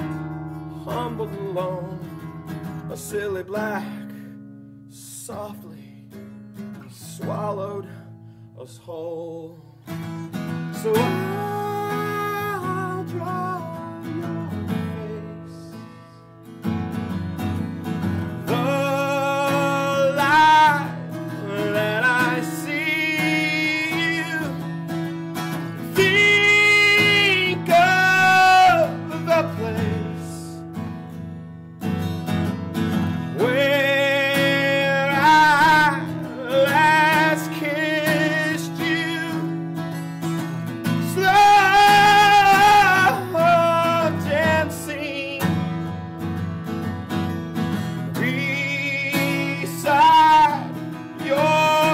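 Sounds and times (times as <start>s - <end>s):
man singing: 0.0s - 16.3s, 18.2s - 30.8s, 33.0s - 46.4s, 47.7s - 51.9s
acoustic guitar strumming: 0.0s - 51.9s.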